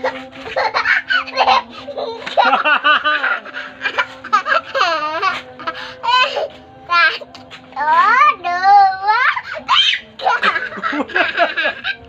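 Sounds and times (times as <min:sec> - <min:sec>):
toddler girl laughing: 0:00.0 - 0:06.4, 0:09.2 - 0:12.0.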